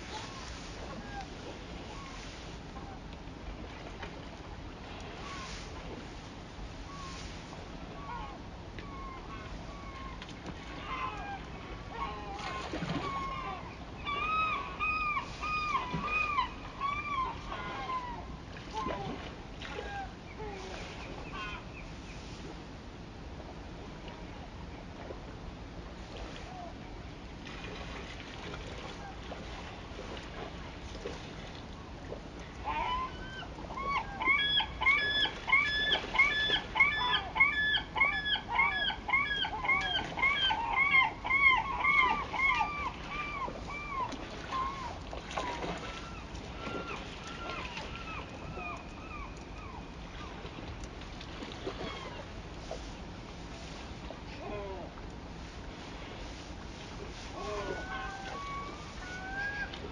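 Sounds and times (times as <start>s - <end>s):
bird calling: 7.9s - 19.2s, 19.8s - 21.9s, 32.6s - 50.6s, 57.2s - 59.9s.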